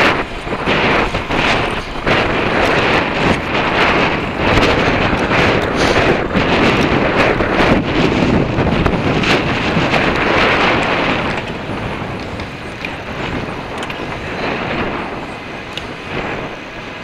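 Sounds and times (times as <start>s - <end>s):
hum of city traffic: 0.0s - 17.0s
wind rushing over microphone: 0.0s - 17.0s.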